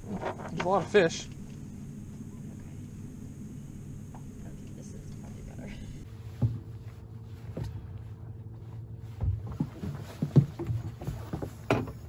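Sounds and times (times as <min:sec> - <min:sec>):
electric trolling motor humming: 0:00.0 - 0:09.6
faint whine: 0:00.0 - 0:12.0
knocks and thumps on boat: 0:06.2 - 0:08.1, 0:09.0 - 0:12.0.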